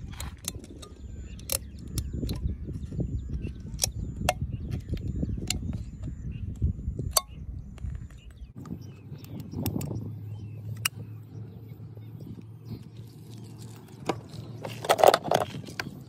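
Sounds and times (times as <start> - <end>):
metal can being torn open: 13.4 - 16.0.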